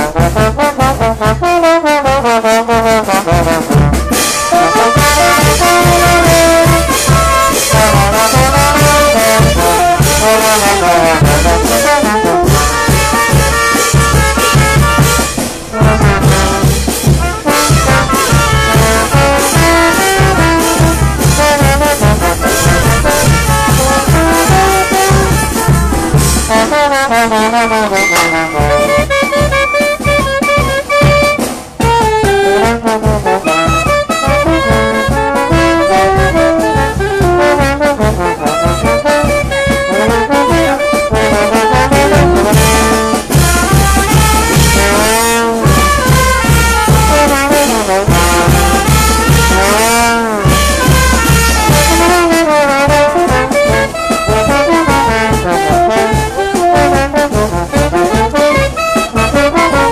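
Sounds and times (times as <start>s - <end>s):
brass band playing: 0.0s - 59.9s
bass drum beat: 3.2s - 31.4s, 34.4s - 39.8s
cymbals crashing: 12.4s - 30.1s.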